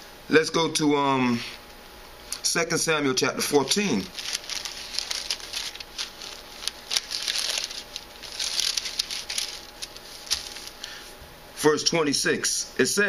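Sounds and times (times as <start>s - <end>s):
thin pages rustling: 3.6s - 11.0s.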